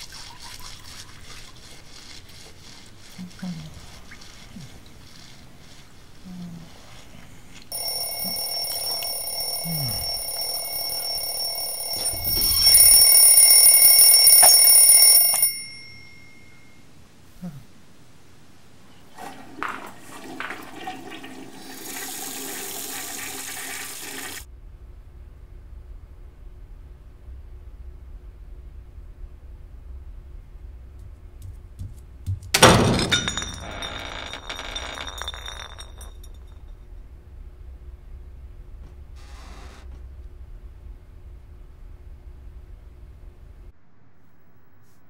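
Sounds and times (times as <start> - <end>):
bell alarm clock ringing: 7.7 - 16.8, 32.6 - 36.2
rushing noise: 43.7 - 45.0.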